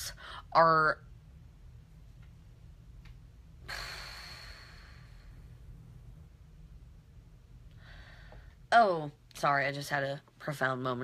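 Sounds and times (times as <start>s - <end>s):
low steady hum: 0.0s - 11.0s
woman sighing: 3.7s - 5.2s.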